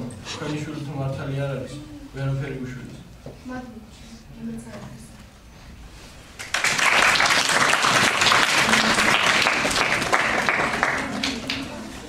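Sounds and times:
audience applauding: 0:06.4 - 0:11.8.

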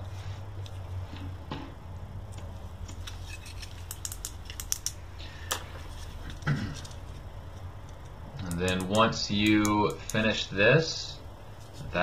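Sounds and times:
steady low hum: 0:00.0 - 0:12.0
light clicks and ticks: 0:06.8 - 0:10.3.

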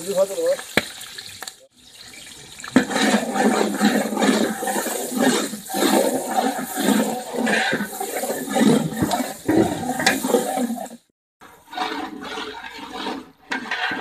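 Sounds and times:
onions sizzling in hot oil: 0:00.0 - 0:11.1
ladle stirring in pot: 0:00.6 - 0:14.0.

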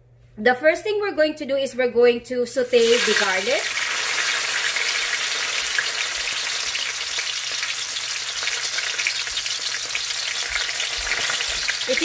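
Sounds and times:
garlic sizzling in oil: 0:02.6 - 0:12.0.

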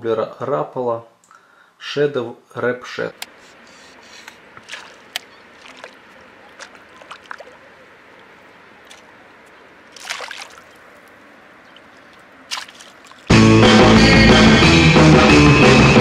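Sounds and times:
faint steady hiss: 0:00.0 - 0:13.3
fish splashing in water: 0:03.4 - 0:13.3
water dripping: 0:04.2 - 0:13.3.

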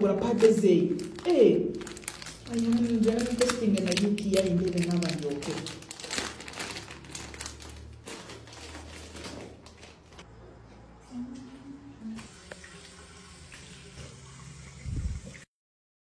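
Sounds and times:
tap water splashing into sink: 0:12.2 - 0:15.5.

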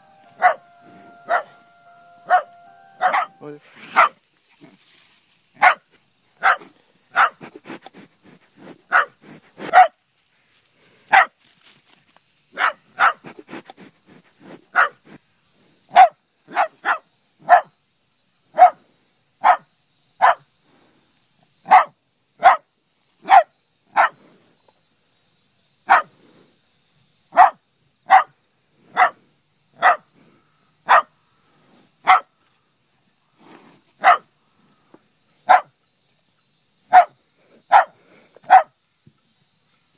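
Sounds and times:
dog barking sharply: 0:00.4 - 0:00.6, 0:01.3 - 0:01.5, 0:02.3 - 0:04.2, 0:06.4 - 0:07.5, 0:08.9 - 0:09.1, 0:27.4 - 0:28.3, 0:30.9 - 0:31.1, 0:34.0 - 0:34.2, 0:36.9 - 0:37.1, 0:37.7 - 0:38.7.

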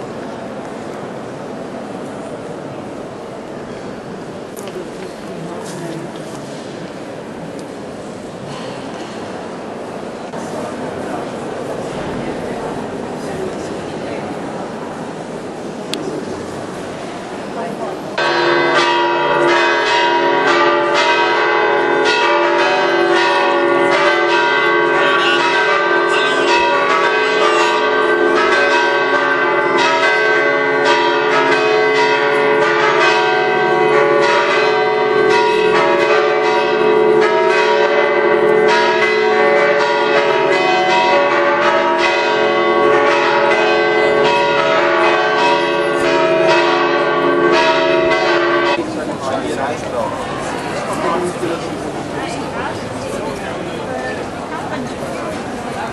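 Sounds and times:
church bells pealing: 0:18.2 - 0:49.4.

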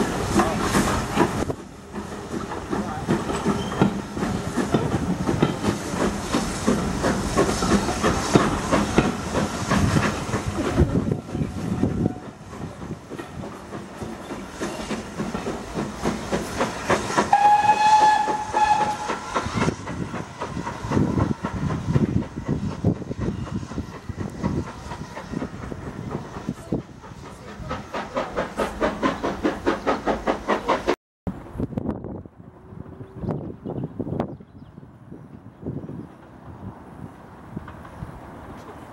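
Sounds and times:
rhythmic train beat: 0:00.0 - 0:31.0
train coaches rumbling over rail joints: 0:00.0 - 0:38.9
steam whistle: 0:17.2 - 0:19.5.

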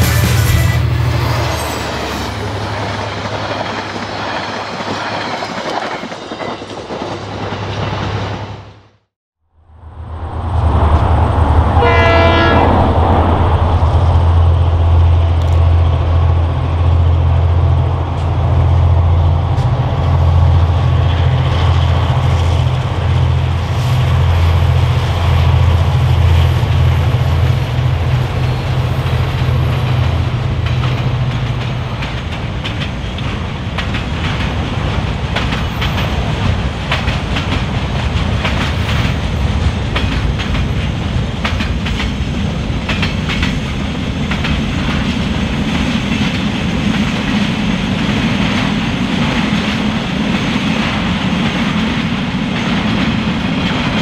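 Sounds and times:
locomotive engine rumble: 0:09.6 - 0:41.6
train horn blast: 0:11.6 - 0:13.5.

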